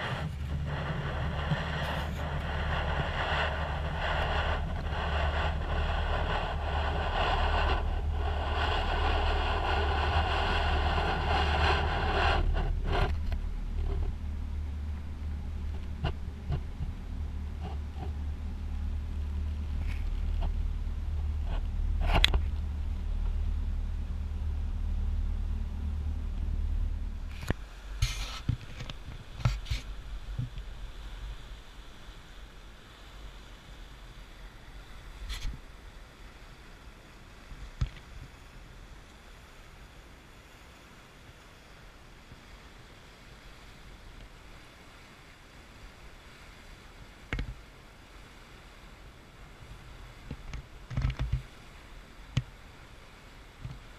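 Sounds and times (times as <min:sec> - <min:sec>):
boat engine drone: 0:00.0 - 0:37.6
wind and water rushing: 0:00.0 - 0:53.9.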